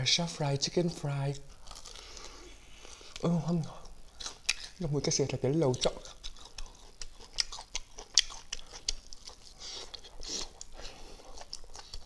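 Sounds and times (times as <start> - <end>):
man chewing crunchy food: 1.2 - 12.0
wet mouth smacks: 6.2 - 9.1.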